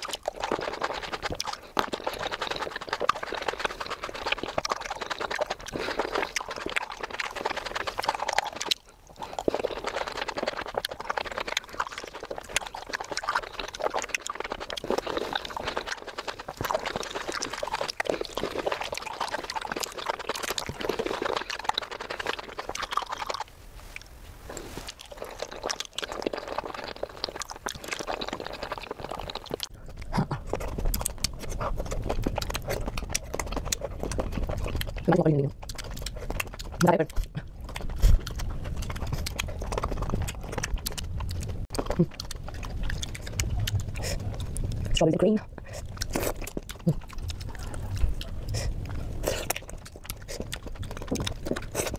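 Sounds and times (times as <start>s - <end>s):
wet chewing and mouth sounds: 0.0s - 51.9s.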